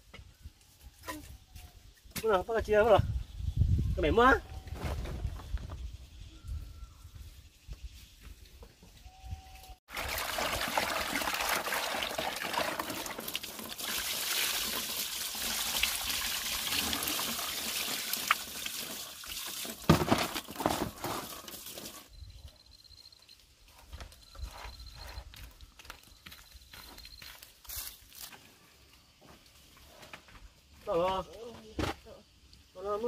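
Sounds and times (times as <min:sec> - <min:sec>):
crabs stirred in water by hand: 0:09.9 - 0:22.1
water pouring into plastic basin: 0:09.9 - 0:22.1
water splashing onto bamboo slats: 0:09.9 - 0:22.1.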